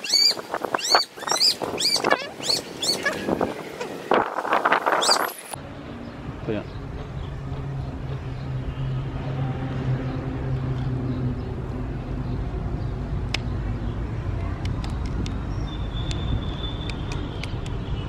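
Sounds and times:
traffic noise: 0.0 - 18.0
low engine hum: 5.6 - 17.7.

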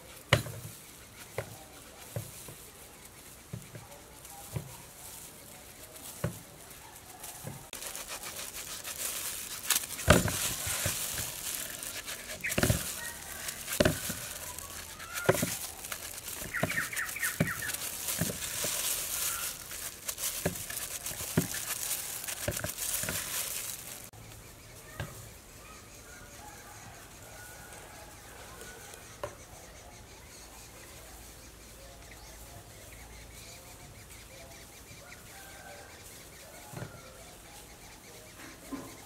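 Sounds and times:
steady high outdoor hiss: 0.0 - 39.0
knife slicing crisp fruit: 7.2 - 24.2
bird calling: 7.7 - 25.0.

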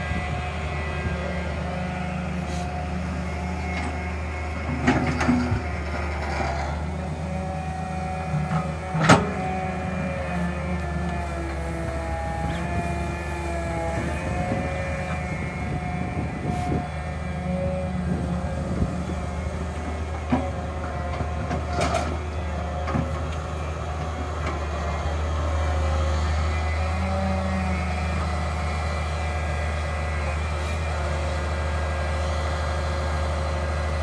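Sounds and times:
hydraulic whine: 0.0 - 23.7
excavator diesel engine running: 0.0 - 34.0.

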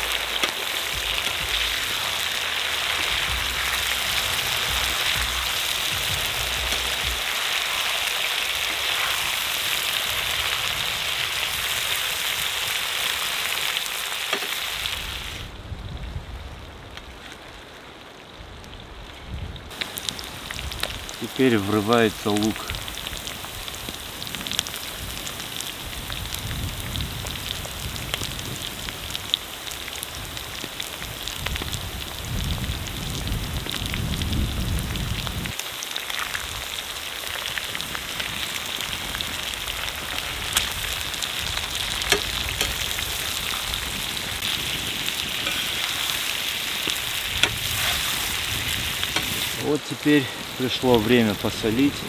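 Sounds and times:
pops and crackles: 0.0 - 10.6, 19.7 - 21.2, 22.2 - 49.6
food sizzling in a pan: 0.0 - 15.5, 19.7 - 49.7.

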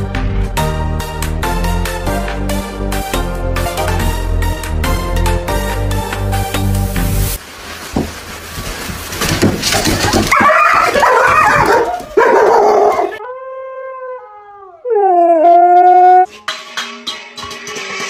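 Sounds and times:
dog barking: 10.3 - 13.2
dog howling: 10.3 - 16.3.

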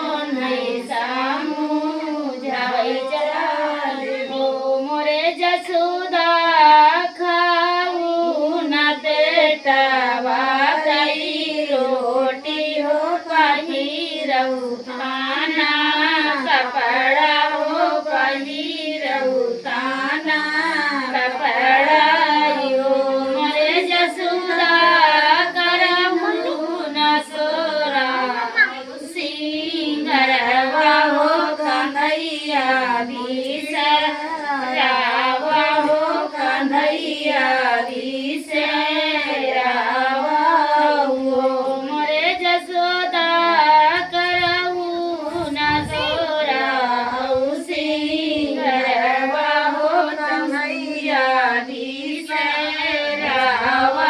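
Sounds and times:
group of women singing: 0.0 - 54.0.

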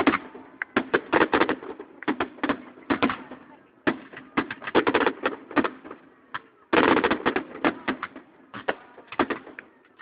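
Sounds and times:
fireworks bangs and pops: 0.0 - 10.0.

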